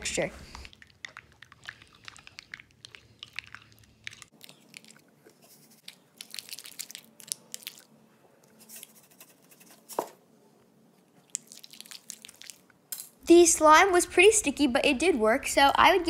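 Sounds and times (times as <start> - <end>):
spoon stirring in glass bowl: 0.8 - 6.4.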